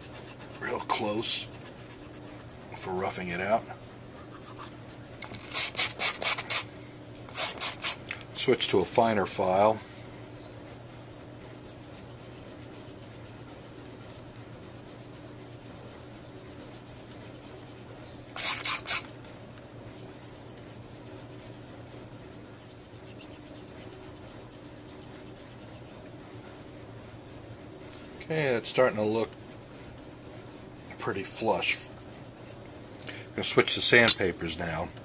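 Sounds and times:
file scraping: 7.3 - 8.0, 20.0 - 26.0, 27.9 - 32.9.

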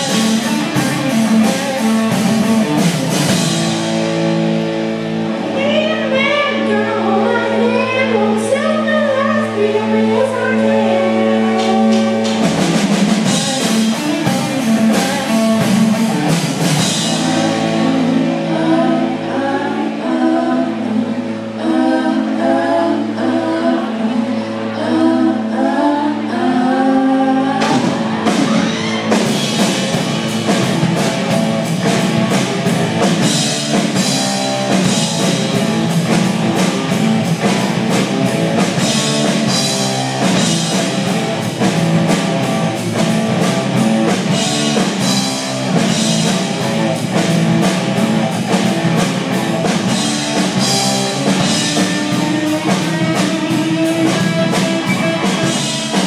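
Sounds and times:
drum kit with cymbals: 0.0 - 4.8, 11.3 - 18.5, 27.6 - 56.0
electric guitar: 0.0 - 56.0.

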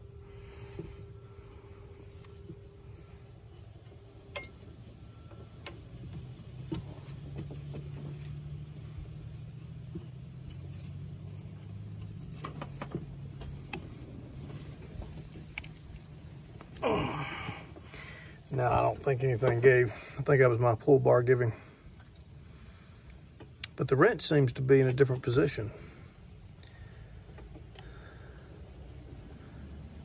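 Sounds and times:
low steady hum: 0.0 - 30.0
wrench clinking on metal bolt: 4.3 - 4.8.

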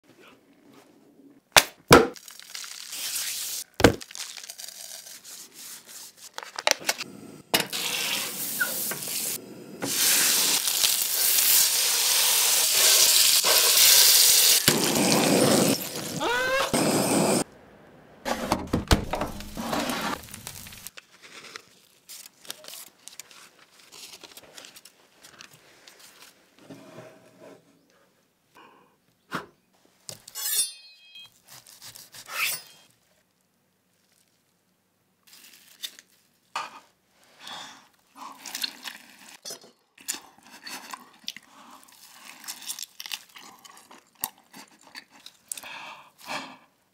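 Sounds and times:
loud hiss: 7.8 - 16.0
biting and chewing steak: 40.0 - 45.7.

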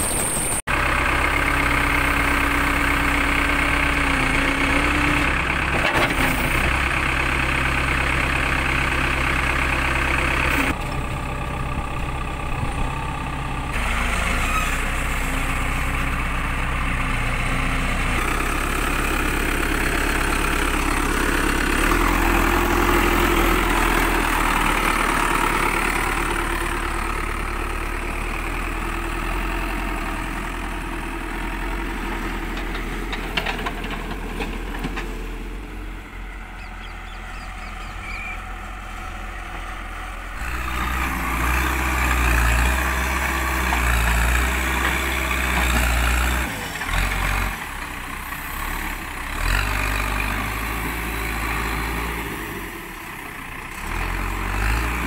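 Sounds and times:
backhoe loader diesel engine: 0.0 - 55.0.

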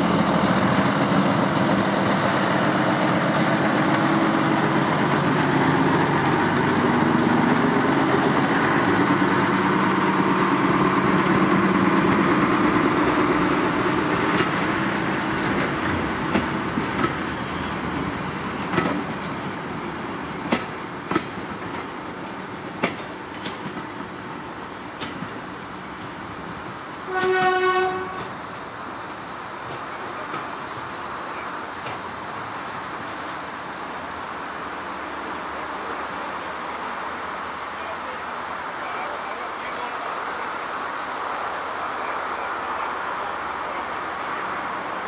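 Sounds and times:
train wheels clicking over rail joints: 0.0 - 27.5, 28.1 - 33.2
diesel locomotive engine running: 0.0 - 45.0.

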